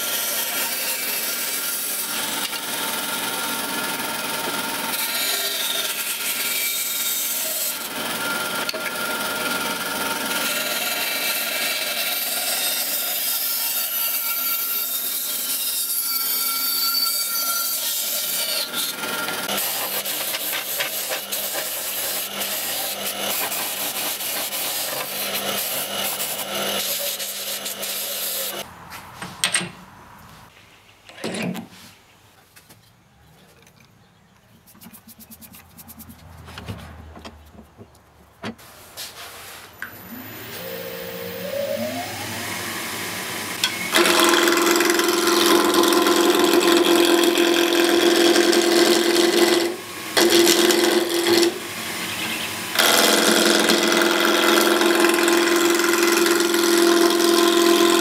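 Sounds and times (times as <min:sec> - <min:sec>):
bandsaw cutting wood: 0:00.0 - 0:28.6, 0:40.0 - 0:58.0
gouge rasping on spinning wood: 0:19.6 - 0:28.5, 0:34.7 - 0:36.2
lathe motor whine: 0:39.9 - 0:45.7.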